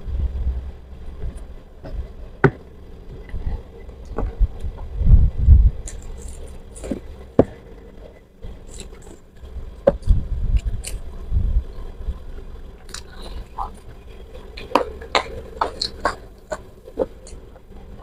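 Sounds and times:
chewing and mouth smacks: 12.8 - 18.0.

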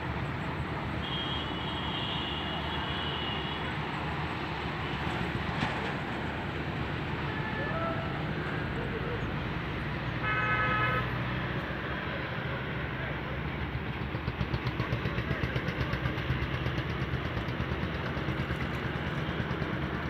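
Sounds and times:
motor engine chugging: 13.4 - 20.0.

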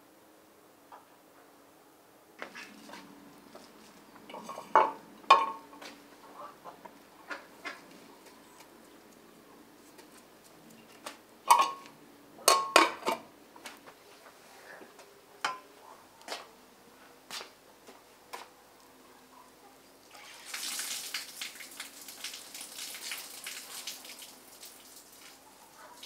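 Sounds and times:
metal pot lid clanking: 11.5 - 11.8, 12.5 - 13.2.

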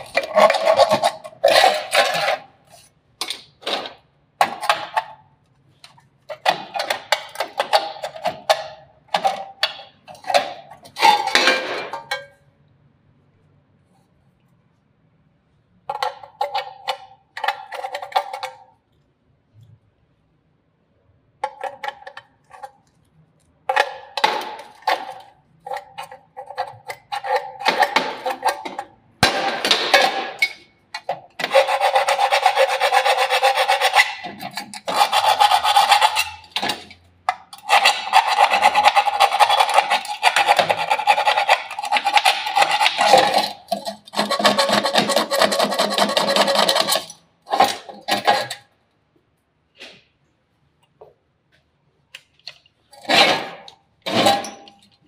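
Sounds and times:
file scraping steel: 0.0 - 2.9, 23.7 - 48.7.

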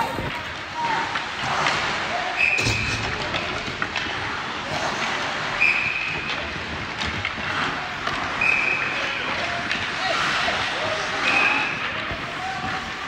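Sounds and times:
skates scraping ice: 0.0 - 13.0
sticks and pucks knocking: 6.2 - 13.0.

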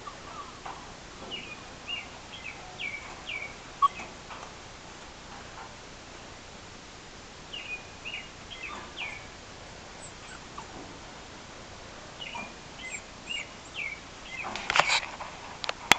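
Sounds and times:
puppy high chirping squeaks: 10.0 - 10.7, 12.3 - 14.0.

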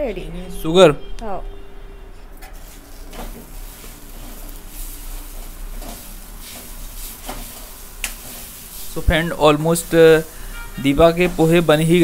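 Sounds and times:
spatula scraping a steel pan: 2.5 - 9.0
steady hiss: 2.6 - 12.0.

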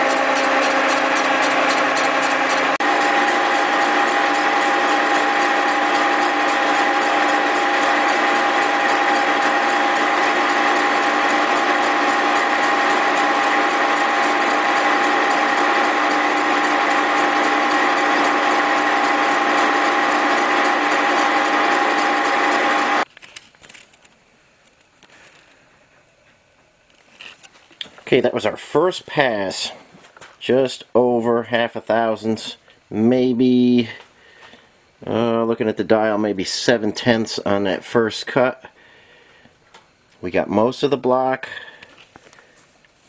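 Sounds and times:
cutter ticking: 0.0 - 23.0
milling cutter metallic whine: 0.0 - 23.0.

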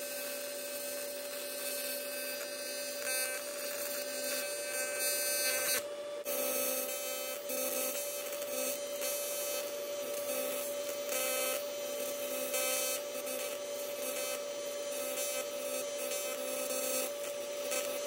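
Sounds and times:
welding arc buzzing: 0.0 - 18.0.

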